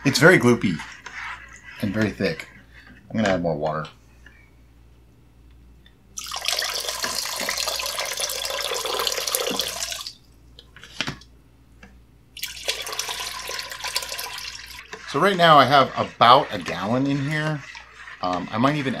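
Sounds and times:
water pouring into bucket: 6.2 - 10.2, 12.4 - 14.8.

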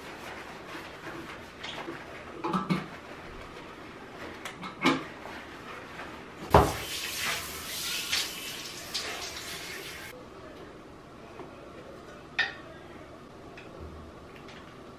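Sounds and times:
tap running into sink: 6.5 - 7.4.

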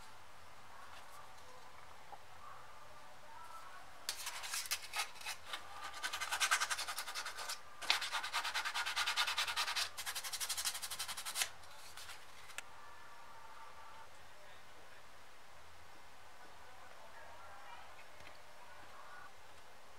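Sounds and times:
sandpaper rubbing leather: 4.2 - 12.1.

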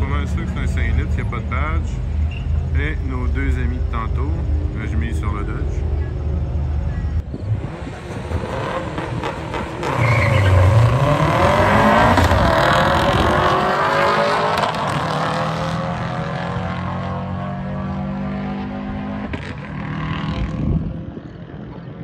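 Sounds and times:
cars accelerating through gears: 7.3 - 20.6.

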